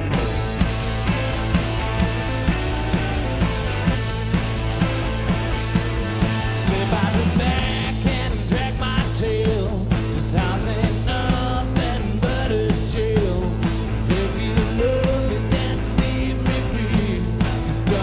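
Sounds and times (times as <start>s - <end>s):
blues harmonica: 0.0s - 8.4s
bass guitar: 0.0s - 18.0s
drum beat: 0.0s - 18.0s
electric guitar: 0.0s - 18.0s.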